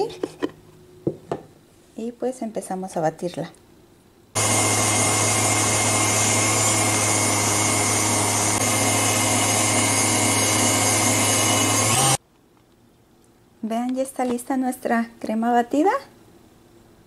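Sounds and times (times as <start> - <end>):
stand mixer whirring: 4.4 - 12.2.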